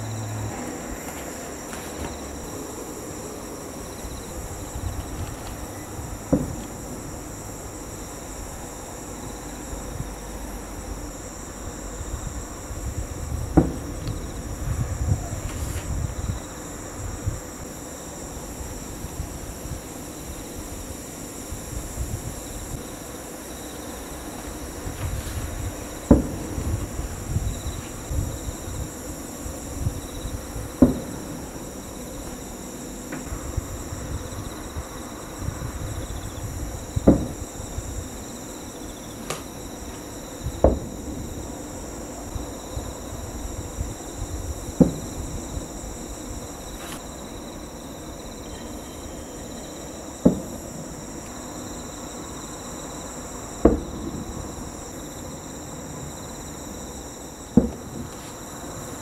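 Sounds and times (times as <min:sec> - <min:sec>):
night insects chirring: 0:00.0 - 0:59.0
distant firework booms: 0:04.2 - 0:07.4, 0:12.3 - 0:16.5, 0:24.8 - 0:32.0, 0:33.0 - 0:38.1, 0:40.4 - 0:41.6, 0:42.3 - 0:45.8, 0:50.2 - 0:51.0, 0:53.6 - 0:54.9, 0:57.5 - 0:58.2.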